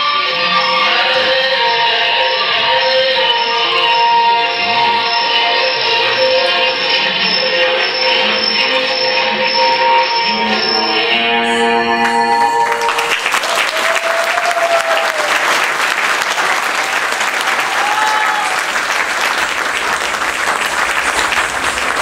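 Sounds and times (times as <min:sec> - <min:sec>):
instrumental dance music: 0:00.0 - 0:14.9
audience applause: 0:12.0 - 0:22.0.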